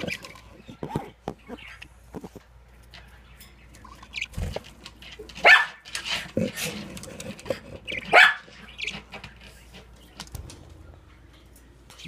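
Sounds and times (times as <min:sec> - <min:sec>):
soft chirps and clicks: 0:00.0 - 0:05.3.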